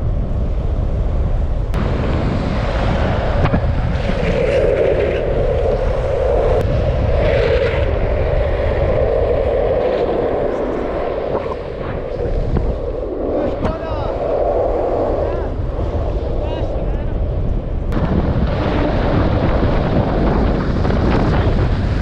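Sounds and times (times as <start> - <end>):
wind rushing over microphone: 0.0 - 22.0
wheels rolling on asphalt: 0.2 - 22.0.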